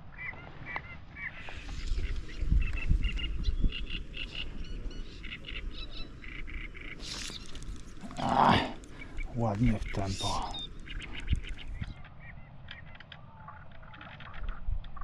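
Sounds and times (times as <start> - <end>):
waterfowl honking: 0.2 - 7.6.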